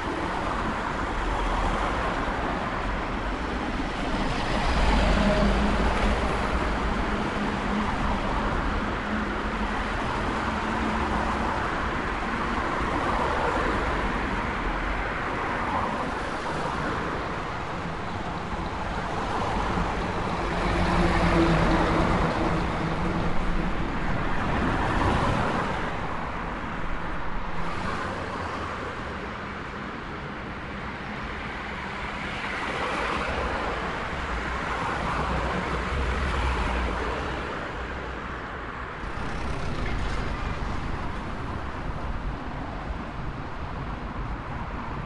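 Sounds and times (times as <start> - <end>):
cars passing: 31.3 - 45.0
engine hum: 39.0 - 44.0.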